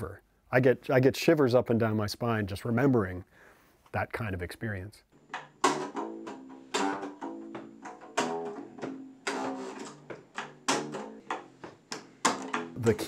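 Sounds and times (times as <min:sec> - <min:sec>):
plucked guitar-like notes: 0:05.3 - 0:13.0.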